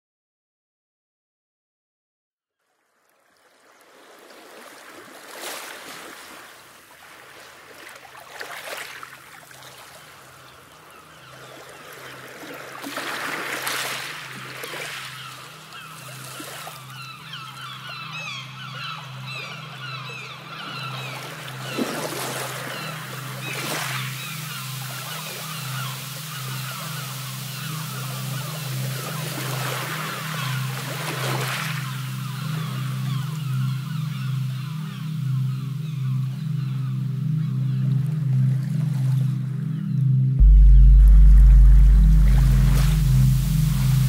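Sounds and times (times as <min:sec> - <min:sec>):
sea water washing: 0:02.9 - 0:35.0, 0:40.4 - 0:44.0
birds chirping: 0:14.5 - 0:38.2
low hum: 0:35.9 - 0:44.0.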